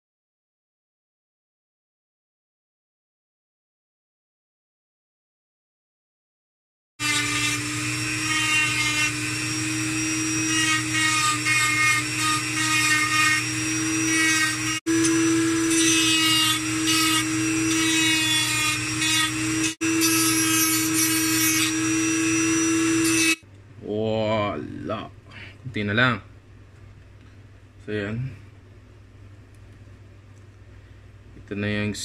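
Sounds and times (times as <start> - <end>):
rotary tool whining: 7.0 - 23.4.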